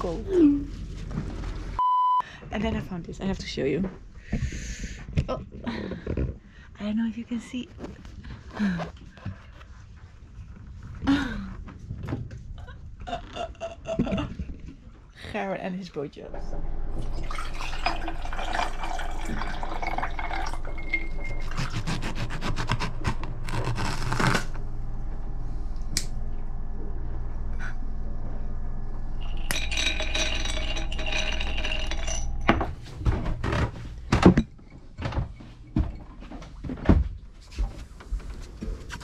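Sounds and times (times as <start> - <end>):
steady low hum: 0.0 - 39.0
water pouring over ice cubes: 17.0 - 21.4
glasses and plate clinking: 17.1 - 21.6, 29.2 - 32.8.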